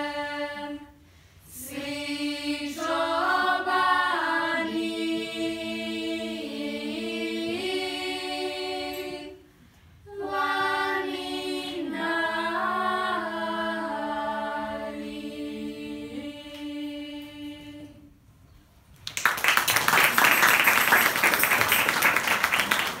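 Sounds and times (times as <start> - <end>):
girls' choir singing: 0.0 - 9.5, 10.1 - 18.1
audience applause: 19.0 - 23.0.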